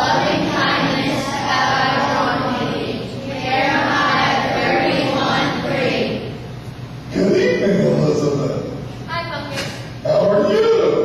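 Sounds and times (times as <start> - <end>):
children reciting in unison: 0.0 - 6.4.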